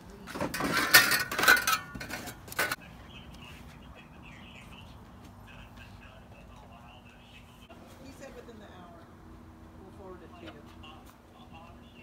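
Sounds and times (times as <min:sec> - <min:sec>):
metal tools clattering in a box: 0:00.3 - 0:02.8.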